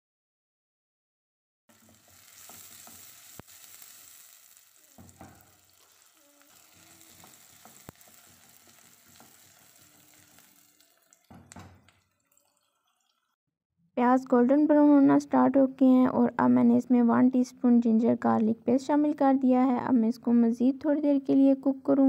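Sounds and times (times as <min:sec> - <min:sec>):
onions sizzling in hot oil: 0:01.7 - 0:11.7
wooden spatula scraping: 0:04.9 - 0:10.6.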